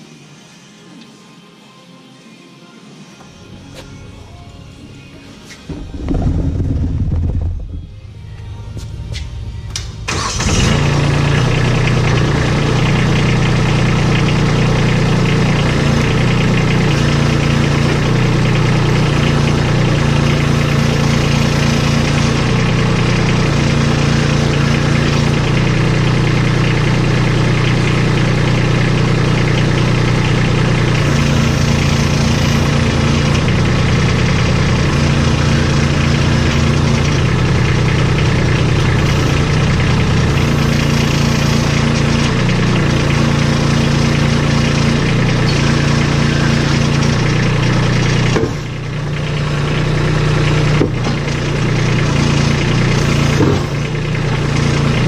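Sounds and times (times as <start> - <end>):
tractor diesel engine running: 3.4 - 55.0
hydraulics swinging plow blade: 50.6 - 55.0.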